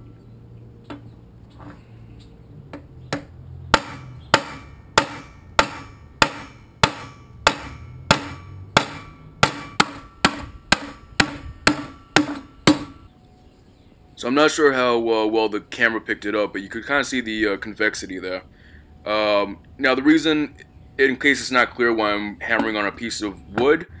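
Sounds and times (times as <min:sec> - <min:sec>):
hammer striking steel sheet: 0:03.7 - 0:13.1.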